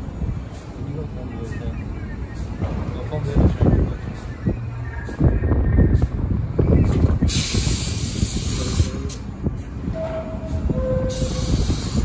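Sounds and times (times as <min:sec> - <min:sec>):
subway train rumbling: 0:00.0 - 0:12.0
pneumatic air hiss: 0:07.2 - 0:09.3, 0:10.4 - 0:12.0.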